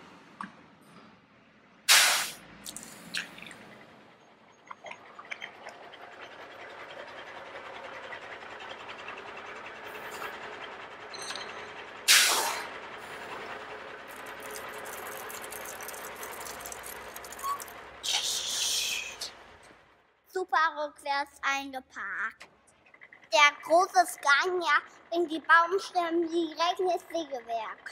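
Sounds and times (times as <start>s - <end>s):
heavy truck driving: 0.0s - 20.2s, 21.6s - 27.9s
air brake hiss: 1.9s - 2.4s, 12.1s - 12.7s.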